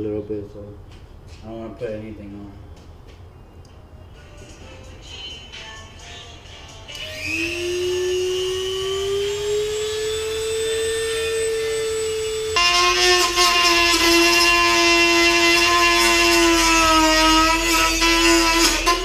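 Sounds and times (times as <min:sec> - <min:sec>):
rotary tool whining: 0:06.9 - 0:19.0
rotary tool cutting: 0:07.0 - 0:19.0.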